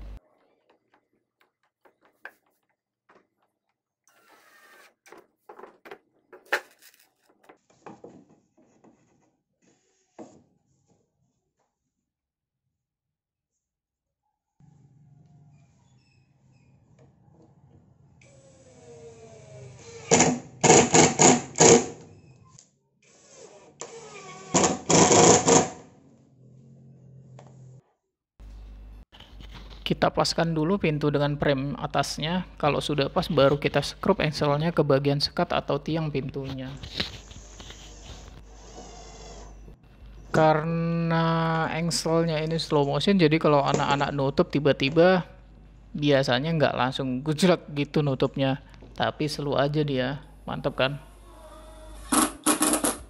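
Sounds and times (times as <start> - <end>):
power driver driving screws: 18.2 - 22.0, 23.0 - 25.8.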